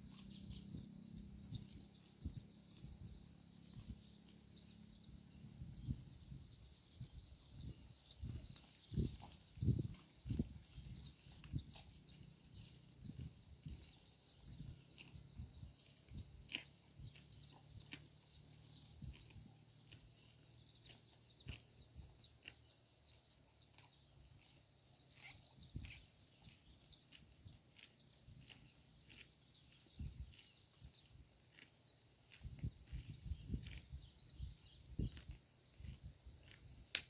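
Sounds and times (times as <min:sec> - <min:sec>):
cattle cropping grass: 0:08.2 - 0:37.0.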